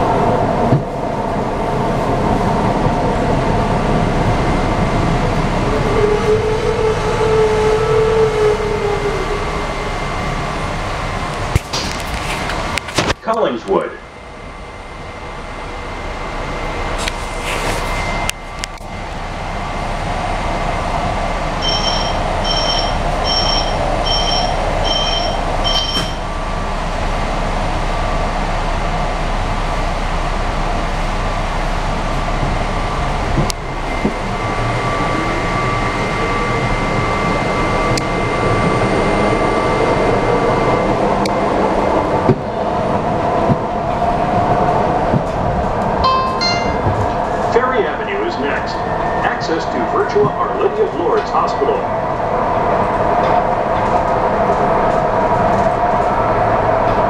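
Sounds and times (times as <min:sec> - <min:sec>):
train rumble and whine: 0:00.0 - 0:57.0
electronic warning beeps: 0:21.6 - 0:26.2.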